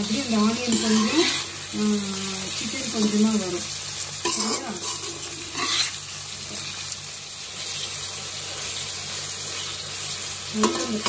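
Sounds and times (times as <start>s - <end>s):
chicken frying in oil: 0.0s - 11.0s
spatula scraping pan: 0.6s - 1.7s, 4.2s - 6.0s.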